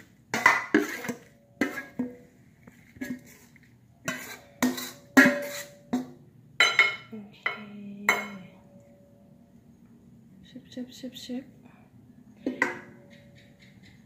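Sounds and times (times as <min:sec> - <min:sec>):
metal spoon scraping steel bowl: 0:00.3 - 0:02.2, 0:02.9 - 0:06.1.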